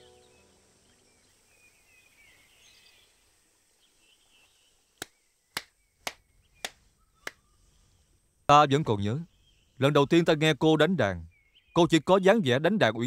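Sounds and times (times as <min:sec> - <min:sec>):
faint bird chirps: 0:00.0 - 0:13.0
man clapping hands: 0:05.0 - 0:07.4.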